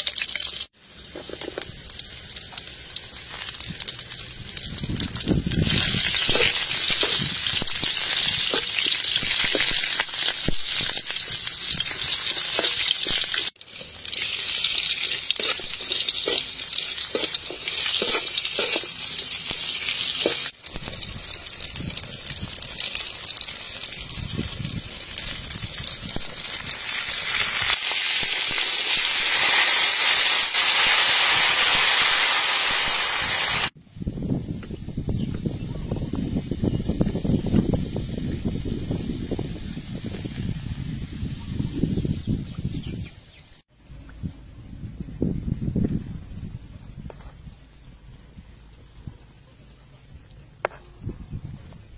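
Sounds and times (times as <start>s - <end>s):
food sizzling in hot oil: 0.0s - 33.8s, 35.8s - 43.6s
metal spatula scraping wok: 5.7s - 20.5s.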